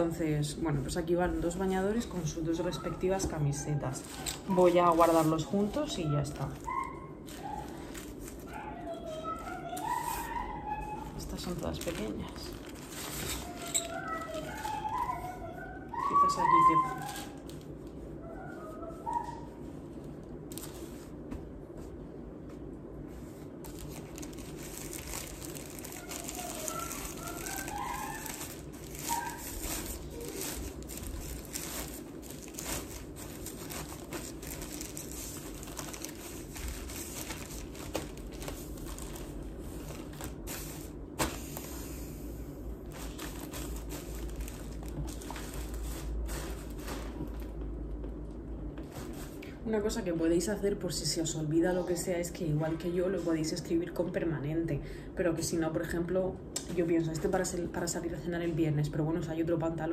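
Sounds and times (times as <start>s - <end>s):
clothes and bags rustling: 0.0s - 42.0s, 42.8s - 47.6s
steady low hum: 0.0s - 59.9s.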